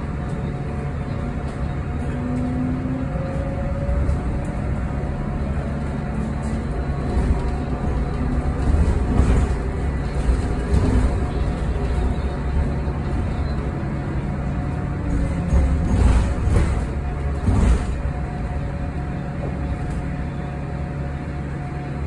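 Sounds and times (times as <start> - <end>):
road and tyre rumble: 0.0 - 22.0.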